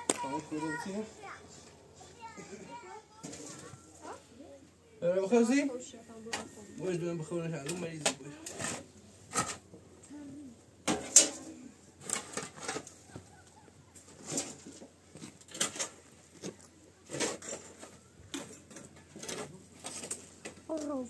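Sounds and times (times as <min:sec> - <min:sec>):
shovel scraping concrete floor: 0:08.3 - 0:09.6, 0:10.9 - 0:13.0, 0:14.1 - 0:16.1, 0:17.0 - 0:18.6.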